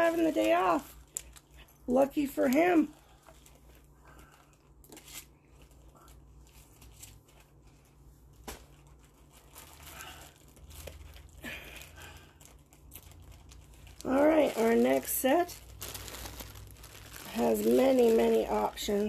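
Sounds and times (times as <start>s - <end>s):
plastic bottle crinkling: 8.5s - 19.0s.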